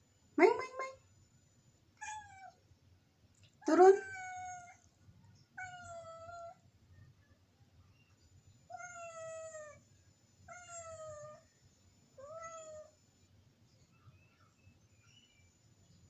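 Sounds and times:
cat meowing: 4.0s - 4.8s, 5.6s - 6.6s, 8.7s - 9.8s, 12.2s - 12.9s.

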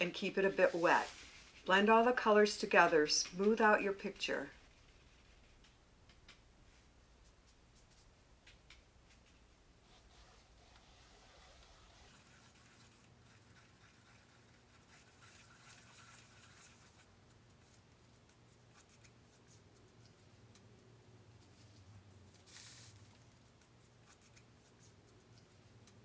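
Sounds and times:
paintbrush scratching on canvas: 0.0s - 1.8s, 9.8s - 20.3s, 21.4s - 25.7s.

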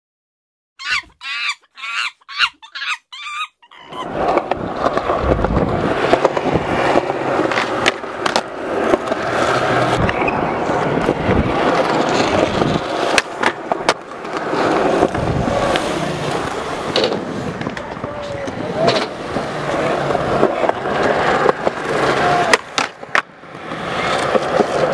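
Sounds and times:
monkey shrieking: 0.8s - 4.1s
skateboard rolling on concrete: 3.8s - 24.9s
skateboard clacks: 4.0s - 24.9s.

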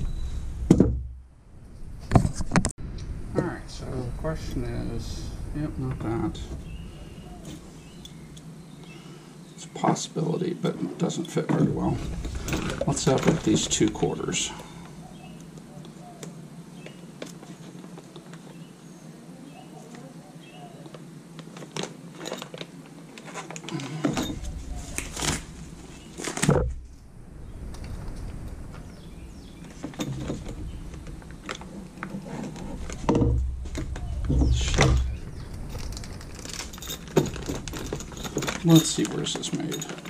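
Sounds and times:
thumps: 29.6s - 38.8s
plastic bags crinkling: 35.5s - 40.0s.

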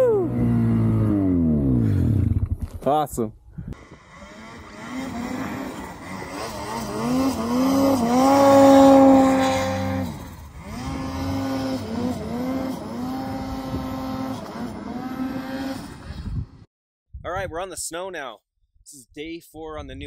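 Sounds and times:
snowmobile engine revving: 0.0s - 2.4s, 3.8s - 16.6s.

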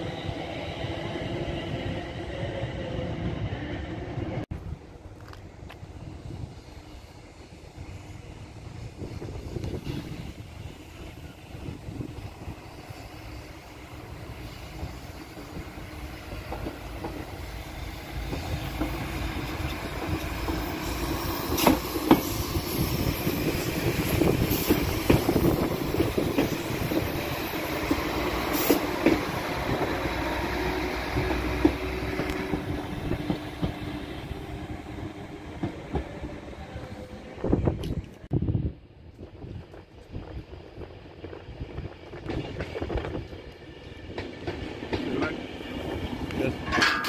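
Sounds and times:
train engines running: 0.0s - 47.0s
train wheels clicking over rail joints: 14.7s - 17.6s, 18.2s - 30.2s, 31.0s - 34.0s, 42.0s - 47.0s.

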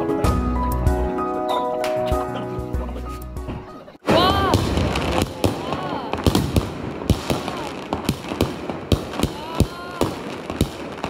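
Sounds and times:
fireworks and firecrackers banging: 4.0s - 11.0s.

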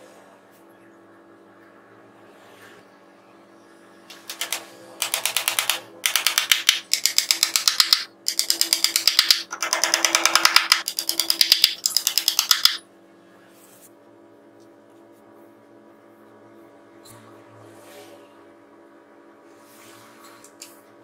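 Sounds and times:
hammer tapping nails into wood: 4.2s - 12.8s.

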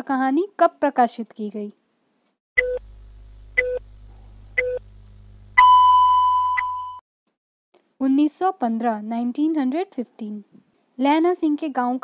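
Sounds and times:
low hum: 2.6s - 6.7s
long high-pitched tone: 2.6s - 7.0s
short beeps: 5.6s - 7.0s.

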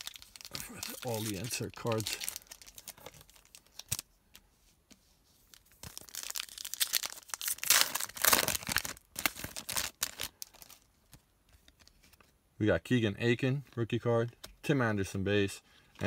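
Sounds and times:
foil wrapper tearing and crinkling: 0.0s - 4.0s, 5.6s - 10.8s.

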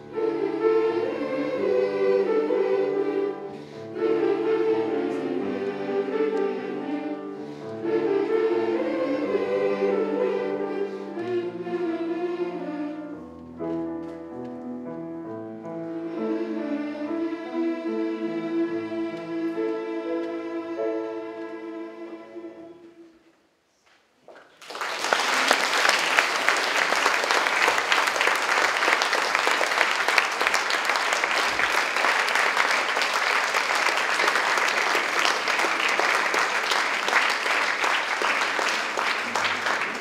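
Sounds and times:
children's choir chord: 0.0s - 13.1s, 16.0s - 23.1s
audience applause: 24.4s - 40.0s.

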